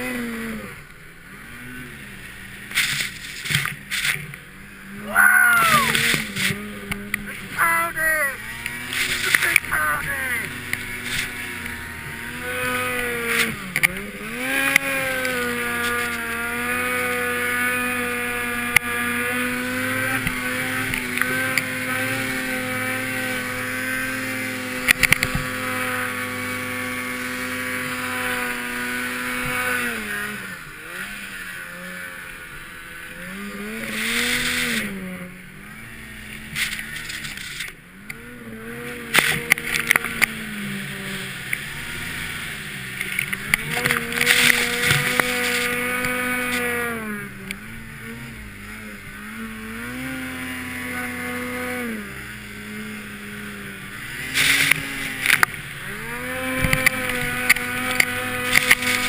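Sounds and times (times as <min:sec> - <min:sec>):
snowmobile engine revving: 0:00.0 - 0:59.0.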